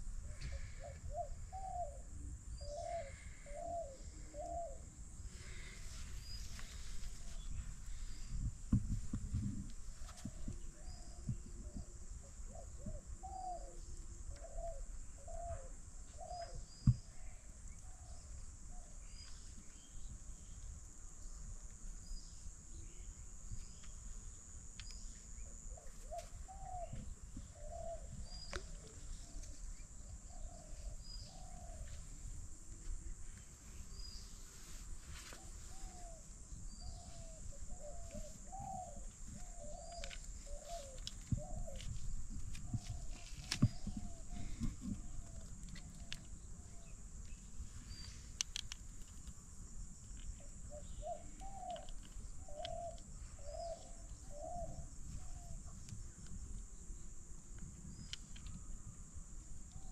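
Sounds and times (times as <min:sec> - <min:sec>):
doves cooing: 0:00.2 - 0:18.2, 0:25.5 - 0:34.2, 0:35.2 - 0:47.0, 0:50.4 - 0:55.8
small birds chirping: 0:00.2 - 0:59.0.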